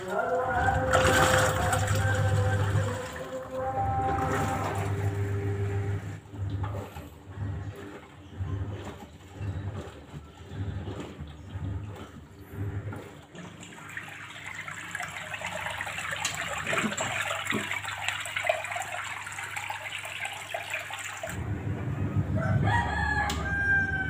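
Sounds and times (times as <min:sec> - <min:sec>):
waste water rushing out: 0:00.0 - 0:03.5
low hum: 0:00.1 - 0:07.7, 0:21.4 - 0:24.0
rooster crowing: 0:22.2 - 0:24.0.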